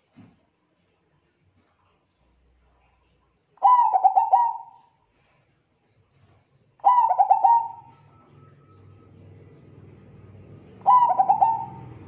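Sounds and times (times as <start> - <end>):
dove cooing: 3.6 - 4.9, 6.8 - 9.1, 10.5 - 12.0.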